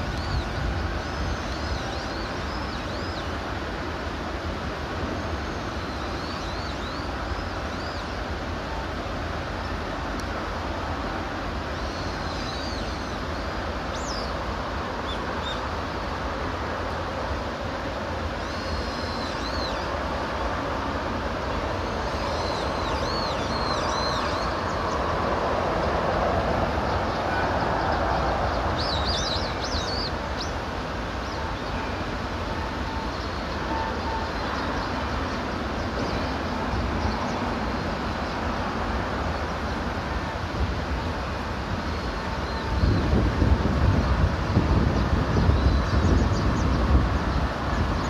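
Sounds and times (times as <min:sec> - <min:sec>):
birds chirping: 0:11.8 - 0:14.4, 0:18.4 - 0:20.5, 0:21.5 - 0:25.1, 0:26.8 - 0:38.5.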